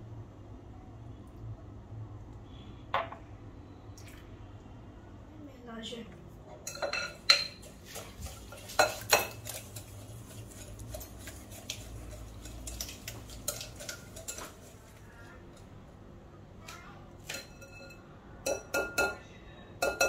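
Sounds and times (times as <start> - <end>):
whisk clinking against glass bowl: 6.7 - 14.7, 17.3 - 19.2, 19.8 - 20.0.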